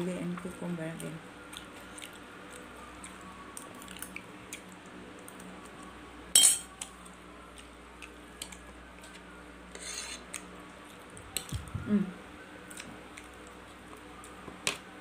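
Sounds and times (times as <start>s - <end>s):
cutlery clatter: 6.4s - 6.7s
cutlery scraping on plate: 6.4s - 6.7s, 9.7s - 10.2s.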